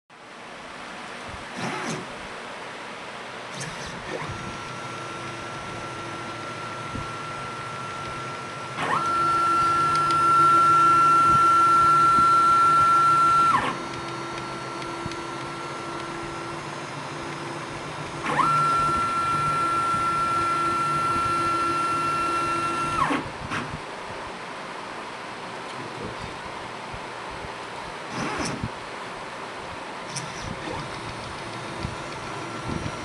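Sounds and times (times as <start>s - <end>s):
low machine hum: 0.1s - 33.0s
stepper motors whining: 1.5s - 2.2s, 3.5s - 23.8s, 28.1s - 28.7s, 30.1s - 33.0s.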